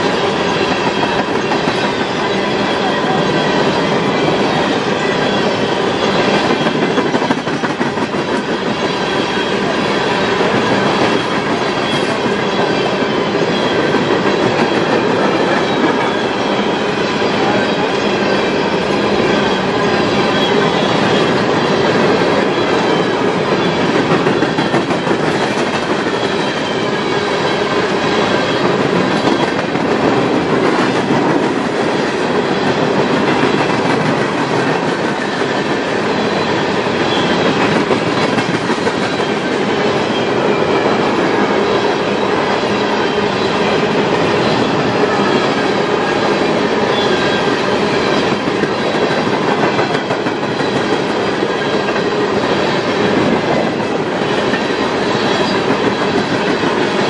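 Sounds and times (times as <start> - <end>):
train wheels rolling on rails: 0.0 - 57.0.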